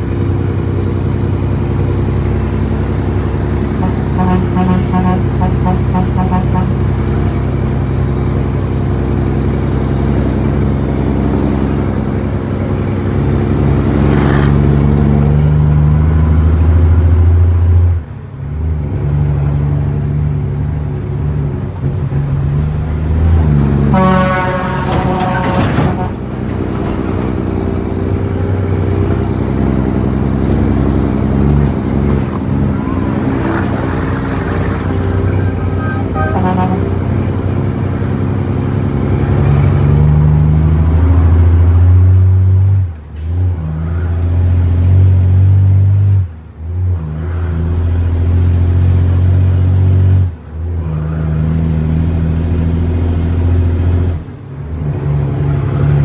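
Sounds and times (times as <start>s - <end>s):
diesel truck engine running hard: 0.0s - 56.0s
truck horn: 3.6s - 7.2s, 23.5s - 26.5s, 29.9s - 37.6s.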